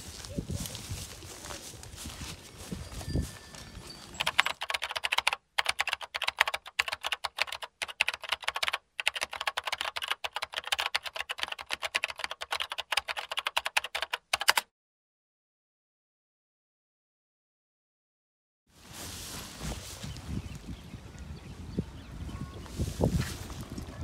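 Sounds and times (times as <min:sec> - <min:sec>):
fast dense clicking: 0:04.2 - 0:14.6.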